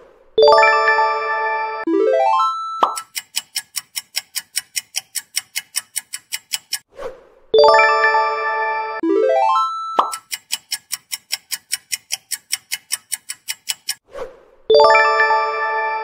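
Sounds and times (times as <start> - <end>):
rising chime notes: 0.4 - 2.8, 7.6 - 10.0, 14.7 - 16.0
countdown timer ticking: 0.4 - 6.9, 7.6 - 14.0, 14.7 - 16.0
short swish: 6.9 - 7.3, 14.0 - 14.5
bright bell-like chime: 14.7 - 16.0.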